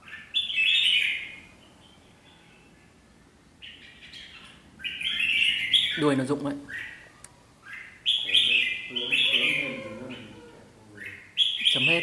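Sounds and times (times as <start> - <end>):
bulbuls chattering calls: 3.6 - 12.0.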